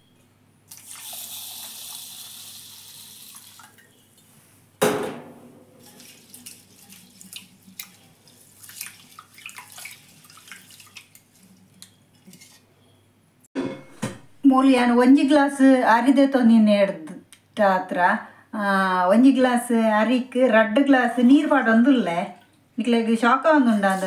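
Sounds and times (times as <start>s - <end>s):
tap water running into bowl: 0.7s - 3.9s, 5.8s - 12.4s
sharp knock: 4.8s - 5.7s
hand swishing rice in water: 5.8s - 11.4s.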